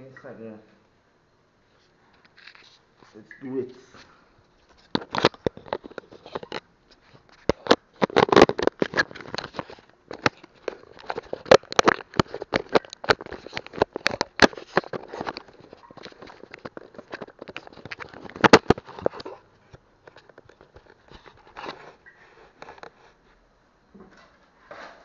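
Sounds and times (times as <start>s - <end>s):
hand handling camera: 2.2s - 2.8s, 4.6s - 23.0s.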